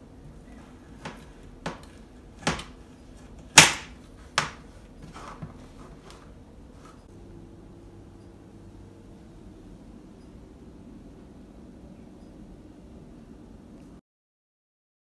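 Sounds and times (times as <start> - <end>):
knife chopping on plastic board: 1.0 - 2.8, 3.4 - 5.5.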